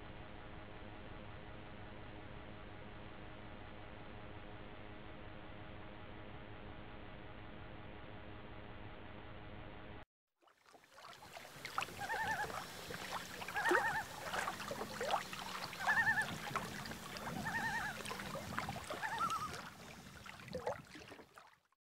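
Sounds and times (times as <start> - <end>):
low steady hum: 11.3 - 21.1
animal wavering call: 11.5 - 20.2.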